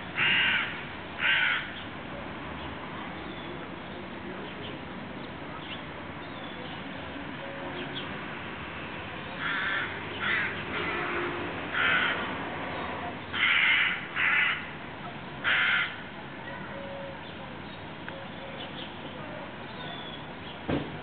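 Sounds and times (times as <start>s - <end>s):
crow cawing: 0.2s - 1.7s, 9.4s - 11.1s, 11.7s - 12.3s, 13.3s - 14.7s, 15.4s - 16.0s.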